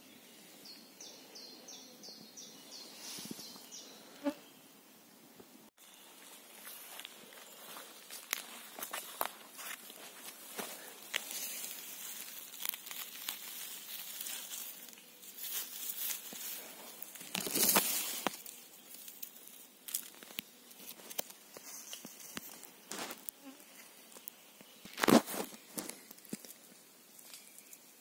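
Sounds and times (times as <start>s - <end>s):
footsteps through undergrowth: 5.8s - 27.8s
rustle and crackle of handling: 5.8s - 28.0s.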